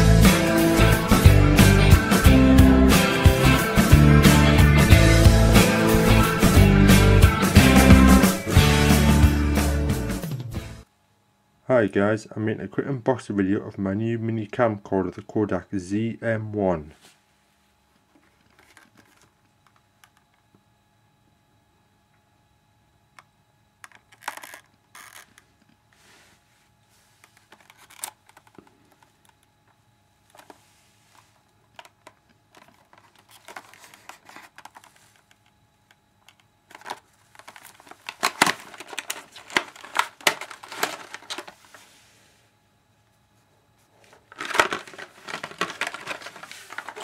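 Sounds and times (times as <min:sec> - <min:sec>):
paper crinkling and rustling: 0:18.2 - 0:19.4, 0:26.0 - 0:29.4, 0:30.3 - 0:35.4, 0:36.7 - 0:42.0, 0:43.9 - 0:47.0
cardboard box being opened: 0:36.8 - 0:41.6, 0:44.3 - 0:47.0.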